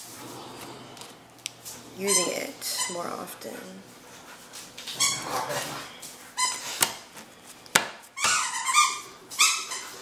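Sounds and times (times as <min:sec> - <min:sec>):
dog whining: 0:04.9 - 0:06.8, 0:08.2 - 0:10.0.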